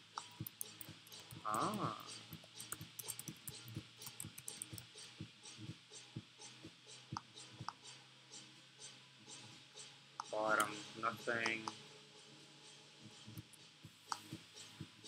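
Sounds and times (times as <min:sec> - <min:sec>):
keyboard keys clicking: 0:00.4 - 0:04.8.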